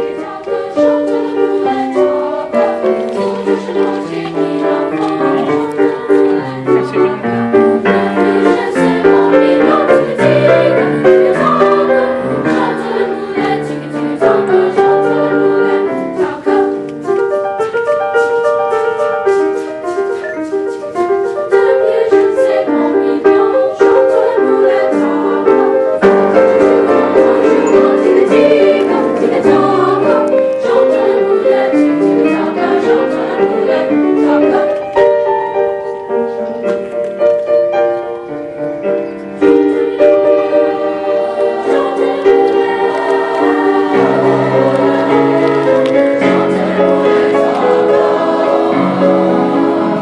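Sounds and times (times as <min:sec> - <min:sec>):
boys' choir singing: 0:00.0 - 0:17.6, 0:18.9 - 0:36.0, 0:39.4 - 0:50.0.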